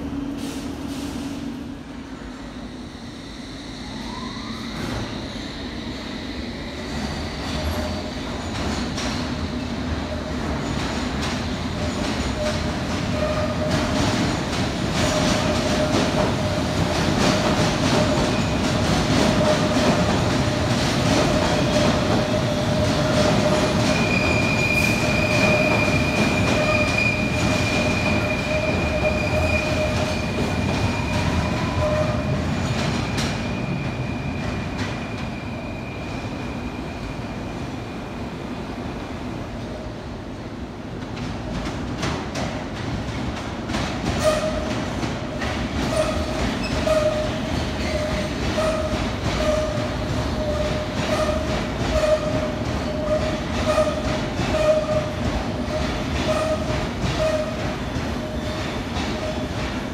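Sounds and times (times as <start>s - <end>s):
underground train rumble: 0.0s - 59.9s
high wheel squeal: 23.5s - 32.3s.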